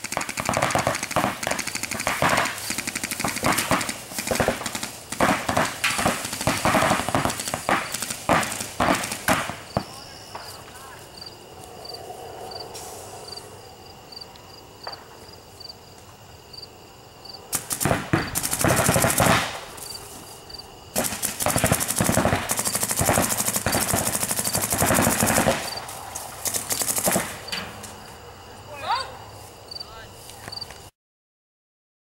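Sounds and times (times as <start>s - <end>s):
paintball markers firing: 0.0s - 10.5s, 17.6s - 19.9s, 21.0s - 27.6s.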